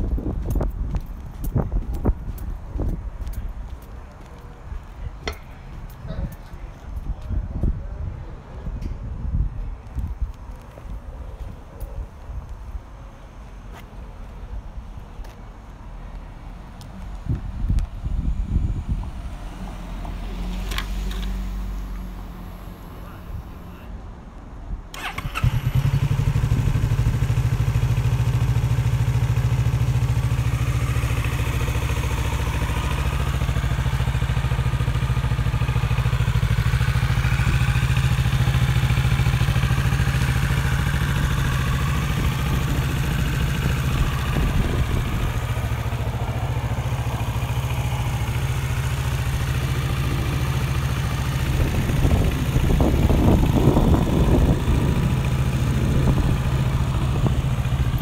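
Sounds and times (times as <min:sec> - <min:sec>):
motorcycle engine idling: 0:24.9 - 0:58.0.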